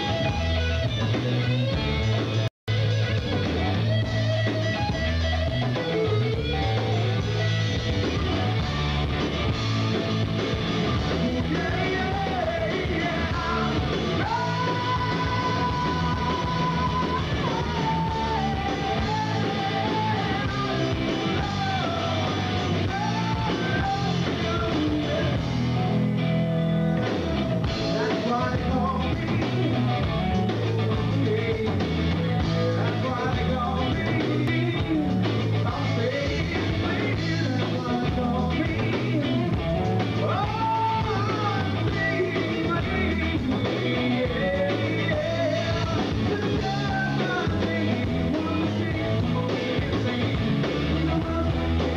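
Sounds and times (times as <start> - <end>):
bass guitar: 0.0 - 51.9
drums: 0.0 - 51.9
electric guitar: 0.0 - 51.9
person singing: 11.0 - 51.9.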